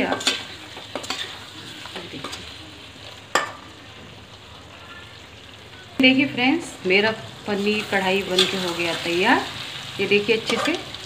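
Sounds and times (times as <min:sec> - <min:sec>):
metal spatula scraping pan: 0:00.0 - 0:02.5, 0:07.6 - 0:11.0
gravy sizzling: 0:00.0 - 0:11.0.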